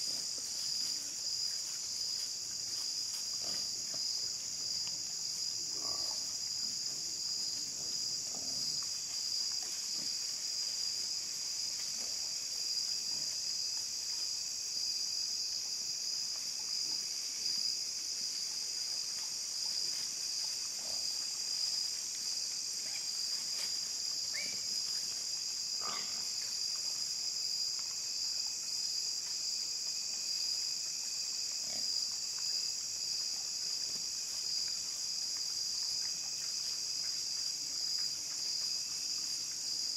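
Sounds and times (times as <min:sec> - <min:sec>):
crickets and insects chirping: 0:00.0 - 0:39.9
sharp hog calls: 0:25.8 - 0:26.2.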